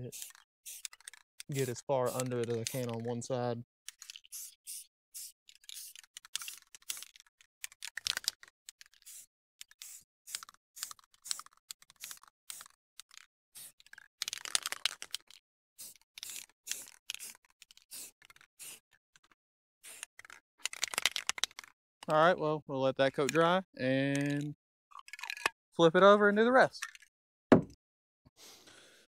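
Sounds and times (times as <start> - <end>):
spray paint can hissing: 0.1 - 3.0, 4.0 - 7.1, 8.9 - 12.8, 13.6 - 13.8, 15.8 - 18.8, 19.8 - 20.8.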